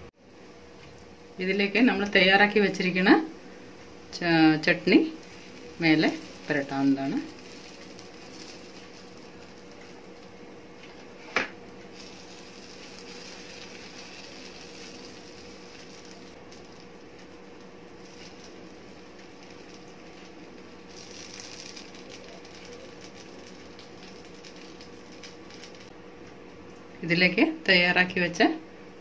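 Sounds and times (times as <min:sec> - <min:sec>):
faint steady hum: 0:00.0 - 0:29.0
food sizzling on hot griddle: 0:05.1 - 0:10.3, 0:11.9 - 0:25.9.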